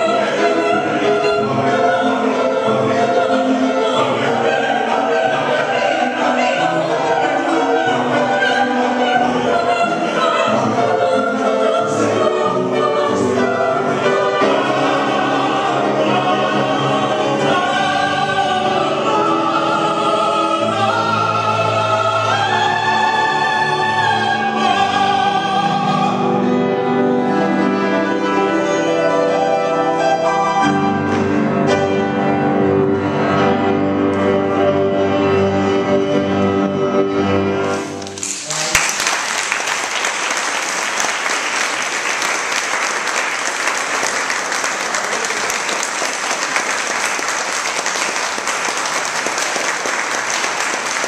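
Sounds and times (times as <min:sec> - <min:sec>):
opera singers singing: 0:00.0 - 0:37.8
piano accompaniment: 0:00.0 - 0:51.0
audience applause: 0:37.8 - 0:51.0.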